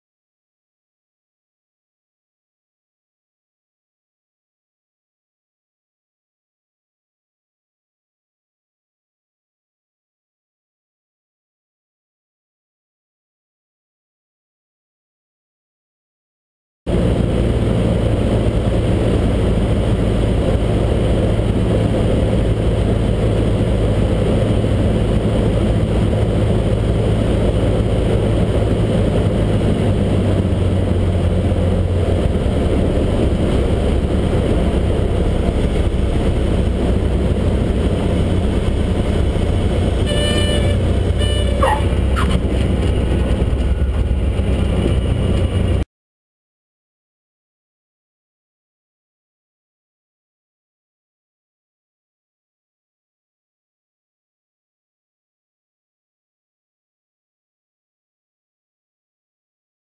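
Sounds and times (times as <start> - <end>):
airflow noise: 16.9 - 45.7
light aircraft engine and propeller: 16.9 - 45.8
pulsing horn-like tone: 40.0 - 42.4
rising squeal: 40.0 - 43.1.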